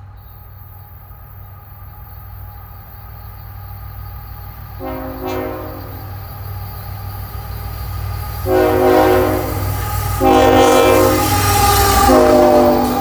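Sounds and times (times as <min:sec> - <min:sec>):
low rumble of passing train: 0:00.0 - 0:13.0
multi-note locomotive air horn: 0:04.8 - 0:06.1, 0:08.4 - 0:13.0.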